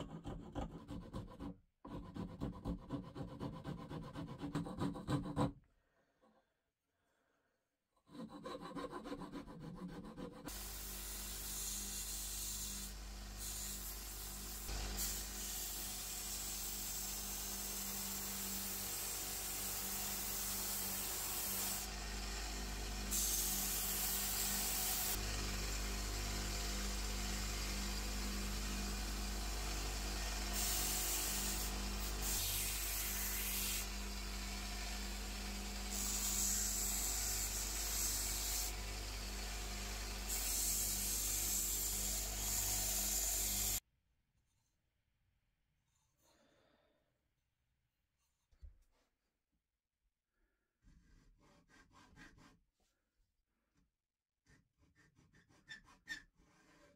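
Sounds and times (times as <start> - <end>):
wood sanding hiss: 10.5 - 21.9, 22.8 - 25.2, 26.6 - 35.2, 35.8 - 43.8
power tool humming: 10.5 - 43.8.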